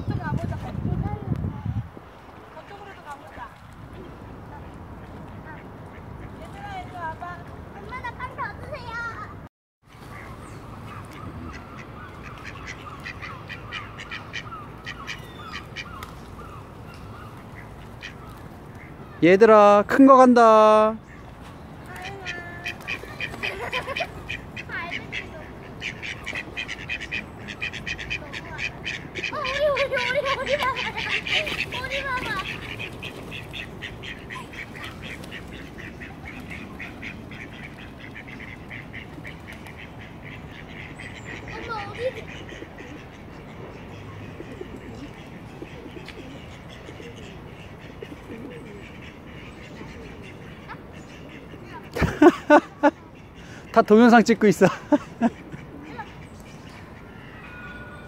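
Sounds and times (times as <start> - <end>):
outdoor background noise: 0.0 - 58.0
waterfowl quacking calls: 10.1 - 19.0, 22.0 - 58.0.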